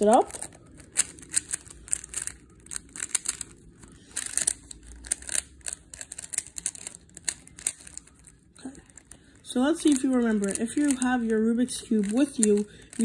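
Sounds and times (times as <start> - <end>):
puzzle cube layers clicking: 0.0 - 8.3, 9.8 - 11.3.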